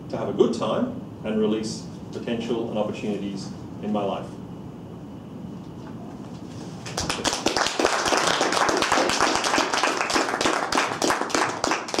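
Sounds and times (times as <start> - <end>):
people clapping: 6.8 - 12.0.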